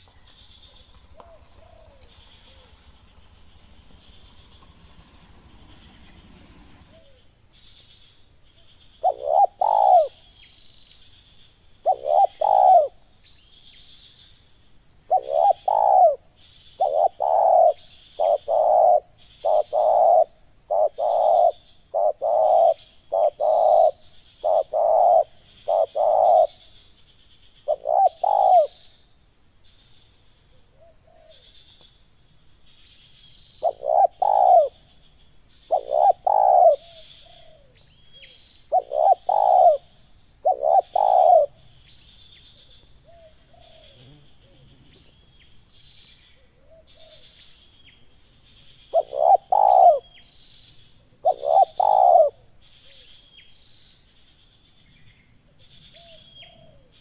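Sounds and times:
dove cooing: 0:00.0 - 0:07.2, 0:09.0 - 0:10.2, 0:11.8 - 0:13.0, 0:15.1 - 0:26.6, 0:27.7 - 0:28.8, 0:33.6 - 0:34.9, 0:35.7 - 0:41.6, 0:43.0 - 0:45.2, 0:48.9 - 0:50.2, 0:51.2 - 0:53.0, 0:56.0 - 0:57.0
faint high chirping: 0:00.0 - 0:14.5, 0:15.1 - 0:29.1, 0:32.6 - 0:57.0.

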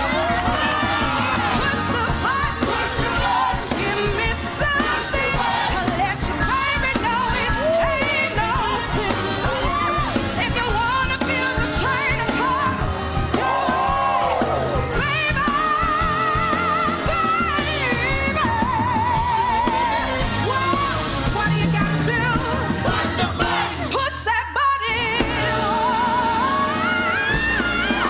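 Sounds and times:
voices singing and calling out: 0:00.0 - 0:11.0
live band playing: 0:00.0 - 0:28.0.

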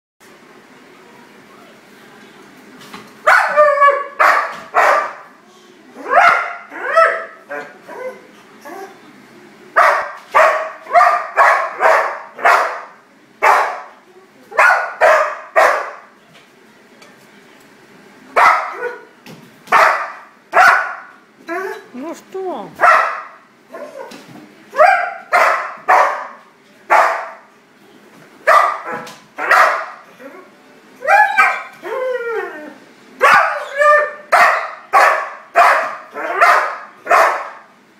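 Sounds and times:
dog barking excitedly: 0:03.2 - 0:05.3, 0:06.0 - 0:08.2, 0:09.8 - 0:16.1, 0:18.4 - 0:19.1, 0:19.7 - 0:21.9, 0:22.7 - 0:24.1, 0:24.7 - 0:27.5, 0:28.4 - 0:30.0, 0:31.0 - 0:31.8, 0:33.2 - 0:37.7
dog whining: 0:30.1 - 0:32.8, 0:33.4 - 0:34.2.

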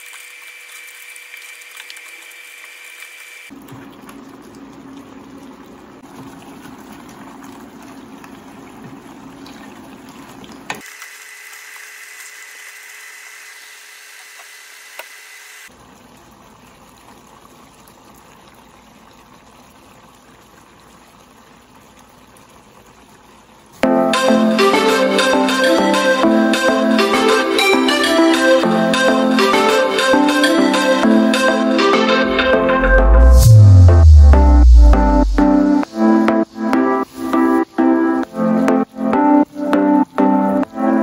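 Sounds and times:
sauce bubbling and sizzling in a pan: 0:15.7 - 0:23.7.

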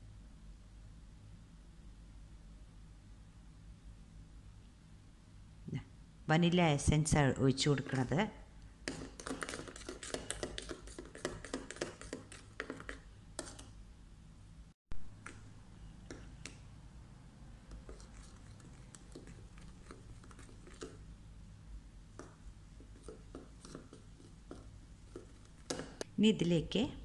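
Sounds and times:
spoon beating batter in a bowl: 0:08.8 - 0:13.8, 0:15.1 - 0:16.8, 0:17.5 - 0:21.2, 0:22.1 - 0:26.1.

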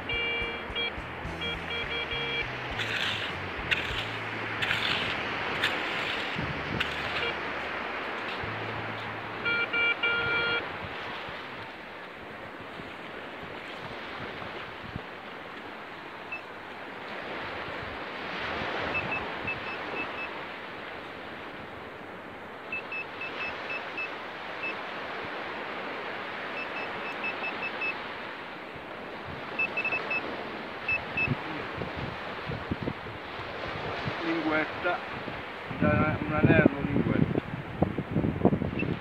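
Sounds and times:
rapid high-pitched beeps: 0:00.0 - 0:05.2, 0:09.4 - 0:10.6
surf: 0:00.0 - 0:39.0
wind: 0:00.0 - 0:39.0
probe pushed through wet sand: 0:02.7 - 0:08.6.

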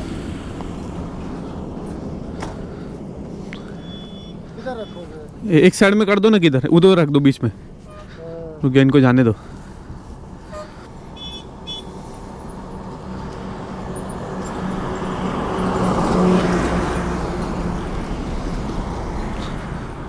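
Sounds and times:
engine hum: 0:00.0 - 0:20.0
vehicle passing: 0:00.0 - 0:20.0
short high horn toots: 0:07.8 - 0:08.3, 0:10.4 - 0:11.9.

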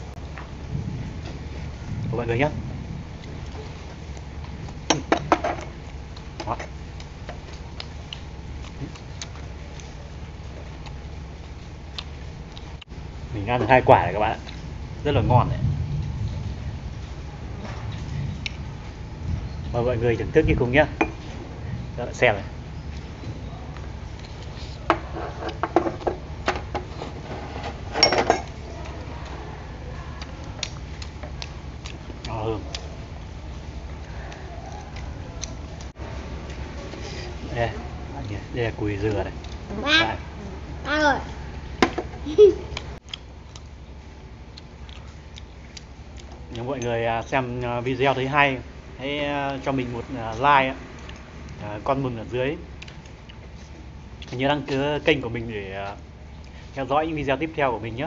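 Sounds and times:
metal spoon clinking ceramic bowls: 0:28.0 - 0:28.6.

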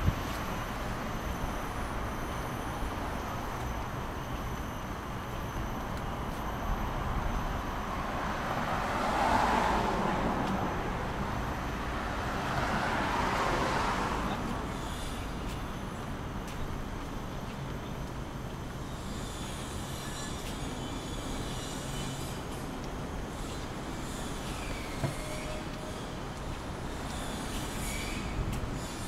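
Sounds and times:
road traffic noise: 0:00.0 - 0:29.0
vehicle passing: 0:08.0 - 0:14.7.

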